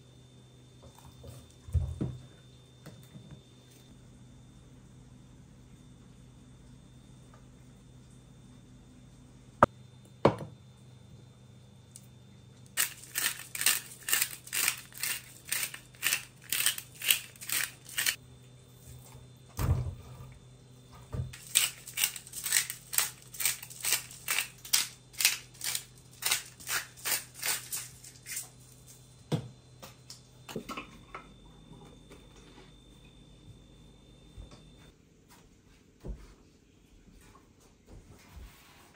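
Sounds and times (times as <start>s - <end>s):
glass spice jar shaking: 12.8s - 18.2s.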